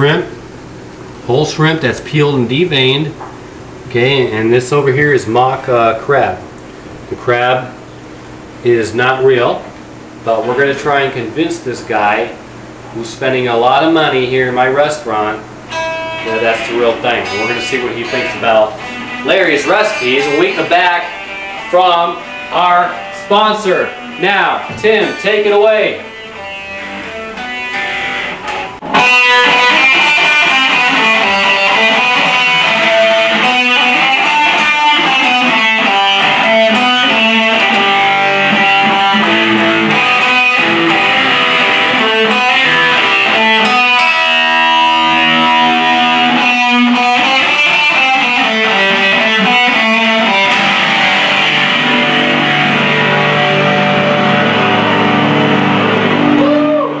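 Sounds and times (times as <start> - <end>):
electric guitar solo: 15.7 - 57.0.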